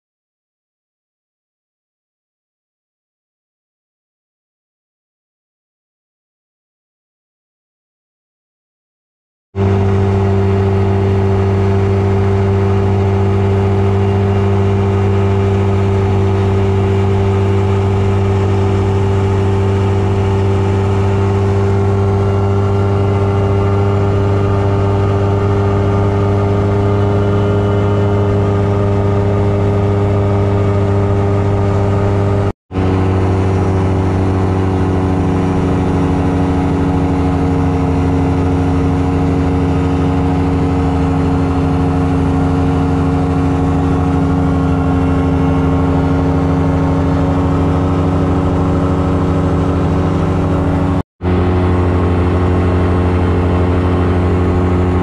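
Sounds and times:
light aircraft engine droning: 0:09.6 - 0:55.0.

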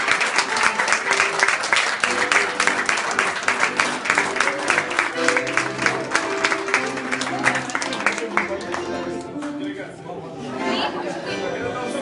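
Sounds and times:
group applause: 0:00.0 - 0:09.6.

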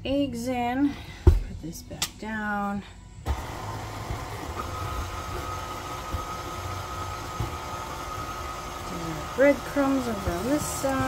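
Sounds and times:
beater thumping through meat: 0:03.3 - 0:11.0
stand mixer motor whining: 0:03.3 - 0:11.0.

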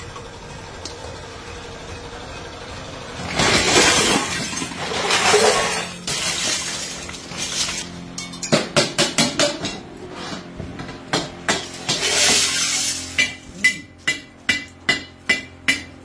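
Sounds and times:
scrap metal clattering onto pile: 0:03.2 - 0:08.7, 0:11.6 - 0:13.5.

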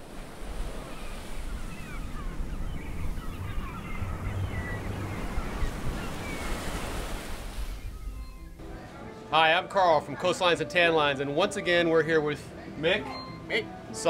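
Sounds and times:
ocean waves washing: 0:00.0 - 0:14.0
short high chirps: 0:13.0 - 0:13.6.

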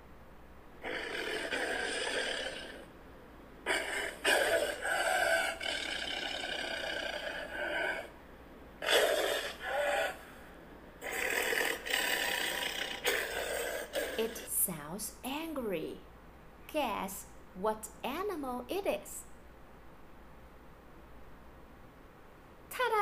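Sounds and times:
tiger growling: 0:00.8 - 0:02.9, 0:03.6 - 0:08.2, 0:08.8 - 0:10.3, 0:11.0 - 0:14.4.

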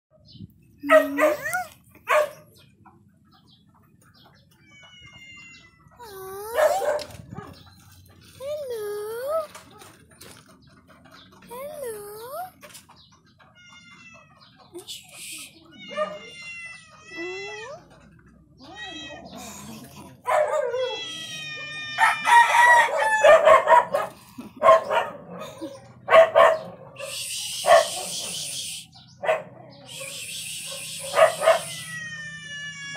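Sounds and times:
dog barking and yelping: 0:00.8 - 0:02.6, 0:06.4 - 0:07.8, 0:15.9 - 0:16.4, 0:20.2 - 0:28.4, 0:29.2 - 0:31.9
rooster crowing: 0:22.0 - 0:23.5.

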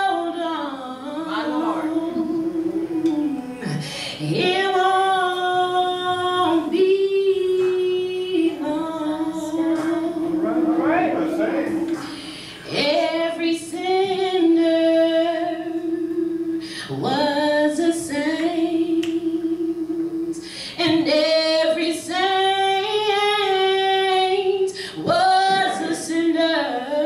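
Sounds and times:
woman singing a cappella: 0:00.0 - 0:10.6, 0:12.0 - 0:27.0
woman breathing: 0:03.7 - 0:04.2, 0:12.0 - 0:12.7, 0:16.6 - 0:17.0, 0:20.4 - 0:20.8, 0:24.7 - 0:25.1.

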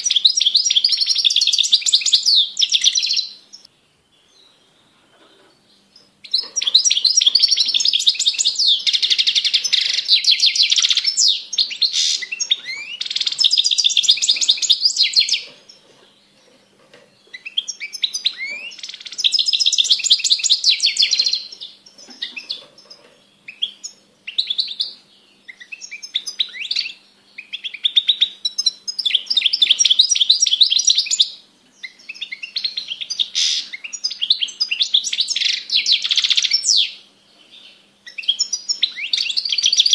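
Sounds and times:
bird twittering song: 0:00.0 - 0:39.9.

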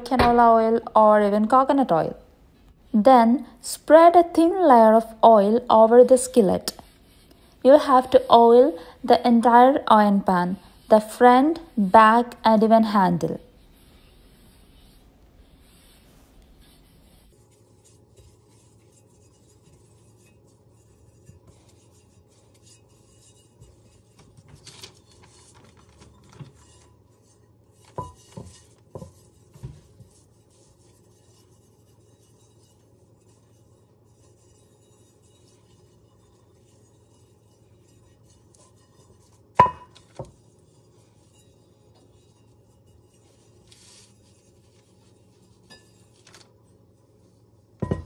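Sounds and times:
heavy pan knocking on counter: 0:00.0 - 0:00.6, 0:39.6 - 0:40.0, 0:47.8 - 0:48.0
hands rubbing skillet: 0:09.4 - 0:47.8.

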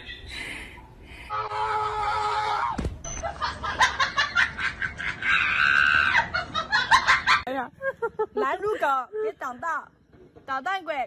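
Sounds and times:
people laughing: 0:03.2 - 0:08.9.

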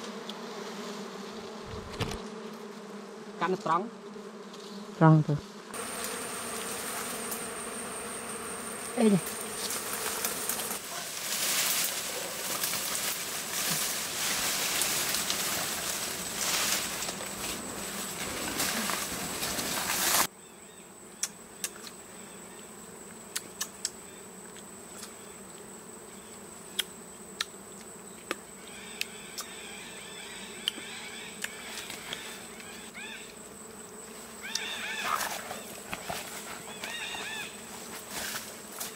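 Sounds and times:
bees buzzing loudly: 0:00.0 - 0:38.9
leaves and branches rustling: 0:05.8 - 0:20.3, 0:34.0 - 0:38.9.

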